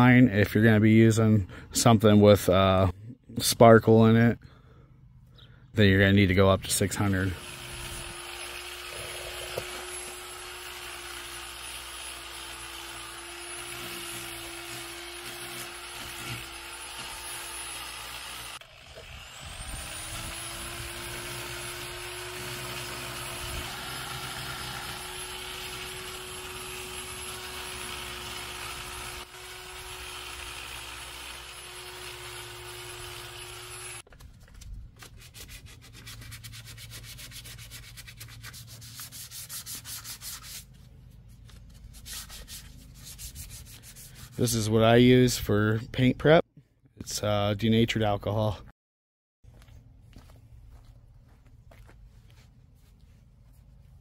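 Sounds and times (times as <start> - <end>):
power sander whining: 6.7 - 34.1
sandpaper rubbed by hand: 35.0 - 44.8.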